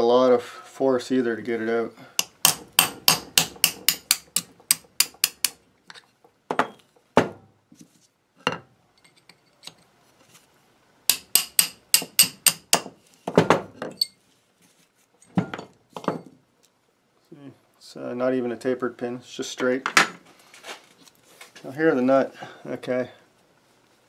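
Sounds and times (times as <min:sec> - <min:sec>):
hammer tapping metal punch: 0:02.2 - 0:05.6, 0:11.1 - 0:12.9.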